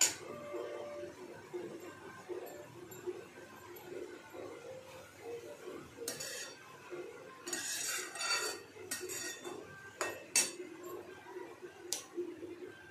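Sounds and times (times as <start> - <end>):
metal spatula scraping steel pan: 6.0 - 6.6, 7.4 - 10.5.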